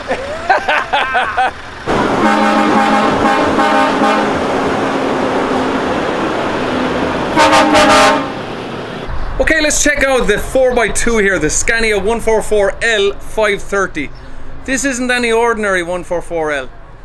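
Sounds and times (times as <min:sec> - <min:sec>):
man laughing: 0:00.0 - 0:01.6
truck air horns blowing: 0:01.9 - 0:05.3, 0:07.3 - 0:08.5.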